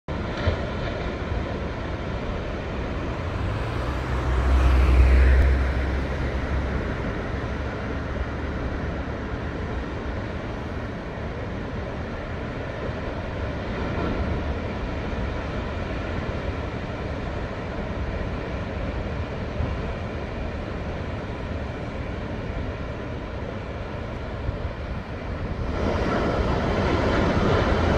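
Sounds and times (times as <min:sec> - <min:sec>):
distant surf breaking: 0:00.1 - 0:27.9
low rumble: 0:02.1 - 0:10.0.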